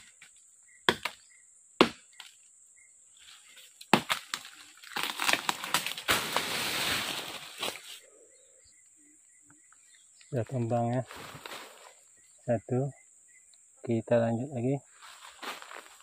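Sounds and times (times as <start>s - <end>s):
machete chopping tree trunk: 0.9s - 2.4s, 3.9s - 6.4s
tree falling through brush: 3.9s - 8.0s.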